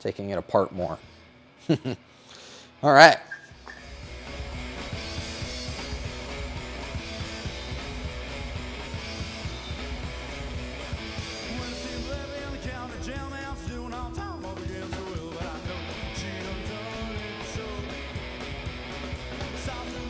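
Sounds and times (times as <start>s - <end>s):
rock and roll music: 3.5s - 20.0s
person singing: 11.4s - 18.2s, 19.4s - 20.0s.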